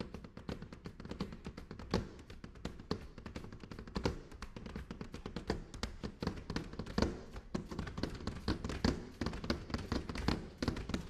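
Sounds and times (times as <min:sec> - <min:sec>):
brooms tapping on stage floor: 0:00.0 - 0:11.0.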